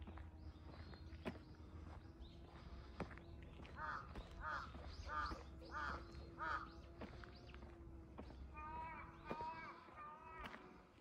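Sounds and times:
crow cawing: 0:03.8 - 0:06.7.

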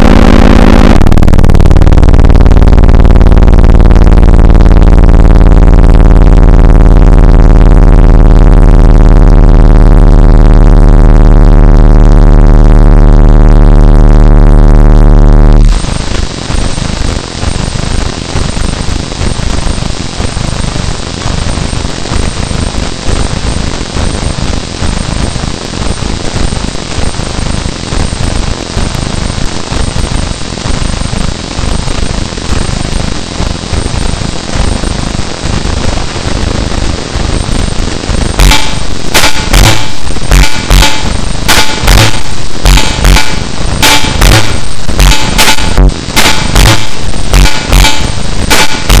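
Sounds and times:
faint high tones: 0:00.0 - 0:01.2
distorted static and rumble: 0:00.0 - 0:49.0.

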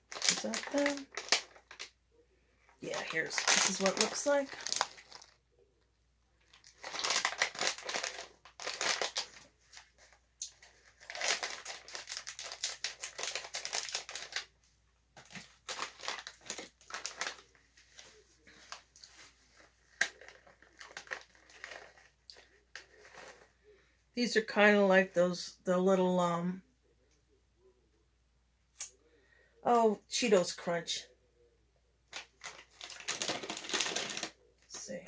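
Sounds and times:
plastic snack bag crinkling: 0:00.0 - 0:02.0, 0:02.7 - 0:05.4, 0:06.4 - 0:14.6, 0:15.2 - 0:23.6, 0:32.1 - 0:35.0.

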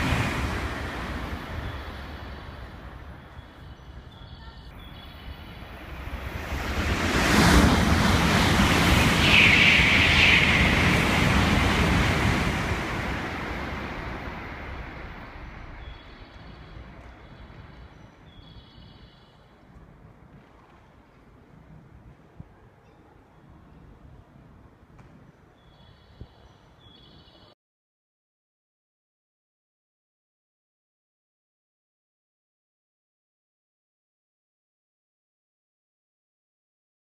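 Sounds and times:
high-speed train passing: 0:00.0 - 0:18.8.

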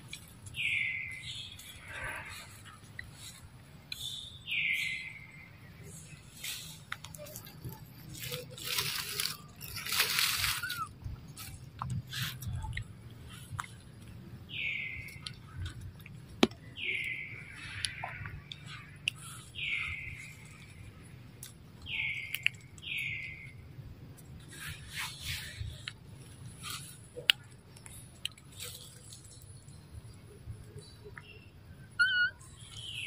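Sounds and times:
rustling: 0:06.1 - 0:12.5.

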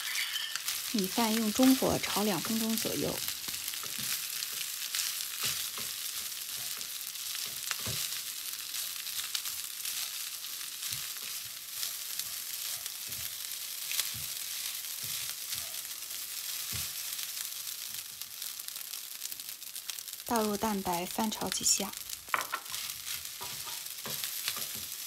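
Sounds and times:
rice sizzling in oil: 0:00.0 - 0:25.0.

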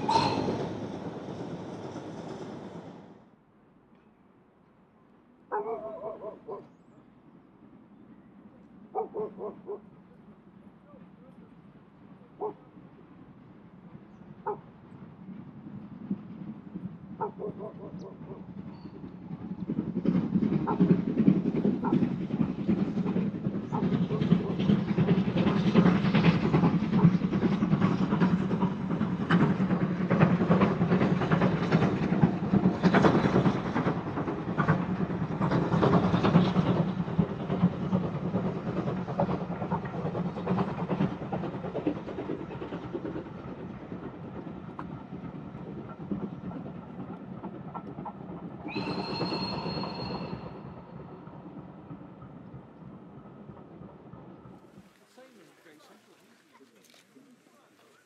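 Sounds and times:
steam whistle: 0:00.0 - 0:00.7, 0:48.7 - 0:50.5
wheels clattering over rails: 0:00.0 - 0:03.3, 0:17.4 - 0:56.6
steam train rumbling past: 0:00.0 - 0:03.4, 0:09.0 - 0:58.0.

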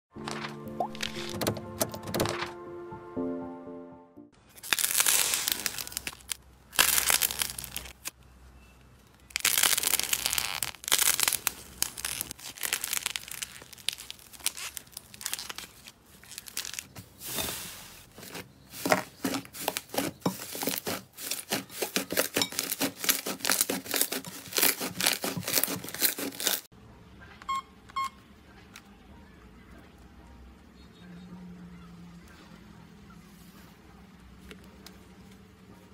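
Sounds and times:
slime crackling and clicking: 0:09.2 - 0:15.7
faint electronic beeps: 0:27.4 - 0:28.3.

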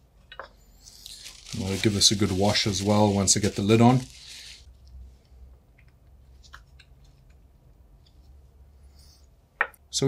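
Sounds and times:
gloved hands rustling: 0:00.9 - 0:04.7.

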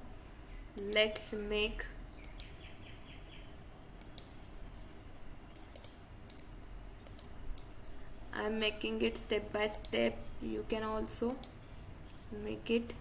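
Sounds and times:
faint low hum: 0:00.0 - 0:13.0
computer mouse clicking: 0:02.2 - 0:02.6, 0:04.0 - 0:04.4, 0:05.5 - 0:07.7, 0:11.2 - 0:11.6.

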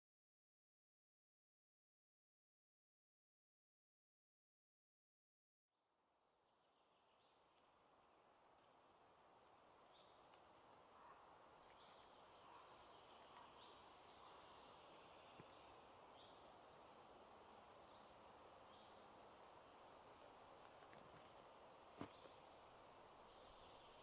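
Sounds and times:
bird chirps: 0:10.9 - 0:20.5, 0:22.0 - 0:24.0.

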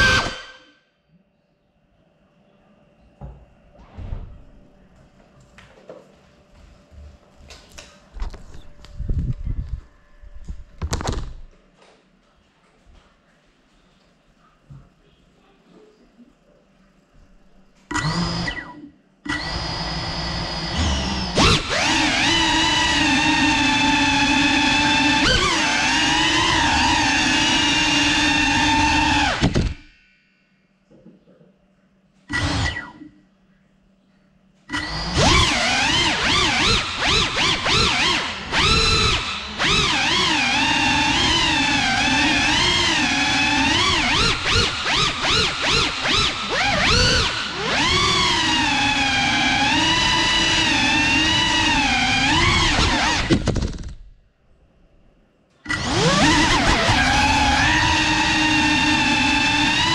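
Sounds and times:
drone motors whining: 0:00.0 - 0:00.7, 0:17.9 - 0:30.2, 0:32.3 - 0:33.2, 0:34.7 - 0:54.0, 0:55.7 - 0:59.9.

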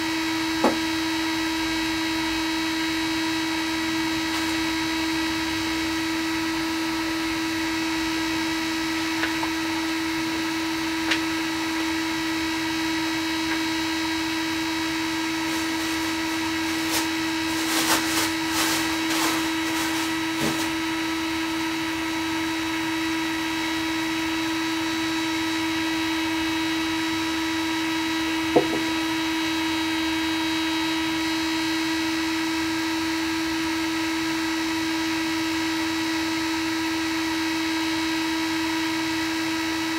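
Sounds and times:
printer fans humming: 0:08.9 - 0:21.3.

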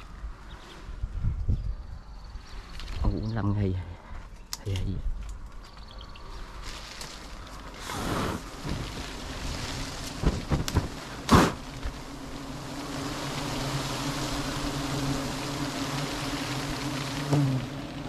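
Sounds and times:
wind buffeting microphone: 0:00.0 - 0:03.4
honeybees humming: 0:05.7 - 0:18.0
knocks and rustles: 0:08.6 - 0:12.0.

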